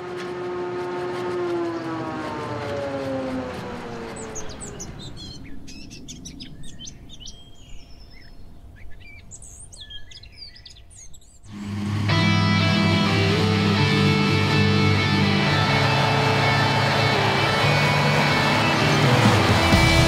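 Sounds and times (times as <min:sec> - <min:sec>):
engine drone: 0:00.0 - 0:06.3, 0:11.5 - 0:20.0
small birds chirping: 0:02.6 - 0:11.7.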